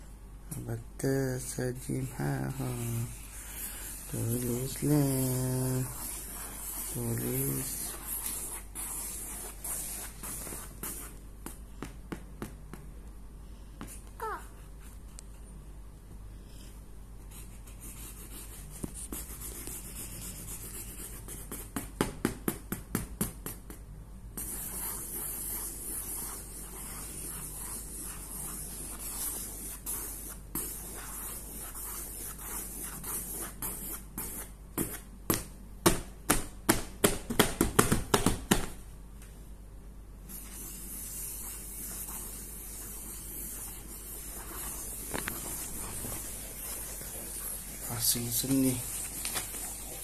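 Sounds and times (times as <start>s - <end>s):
marker scribbling on paper: 1.4s - 12.5s, 17.3s - 21.9s, 24.4s - 35.0s, 40.3s - 50.0s.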